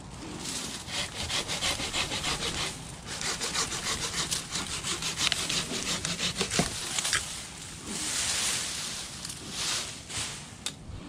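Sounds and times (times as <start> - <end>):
hand saw cutting branch: 0.4 - 7.3.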